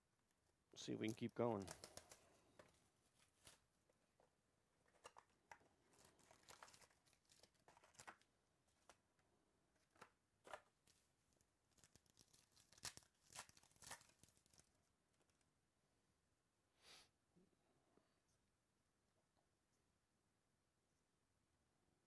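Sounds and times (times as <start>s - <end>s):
plastic wrap crinkling: 1.0s - 3.7s, 4.8s - 9.0s, 11.6s - 14.8s
foil pack tearing open: 11.7s - 14.7s.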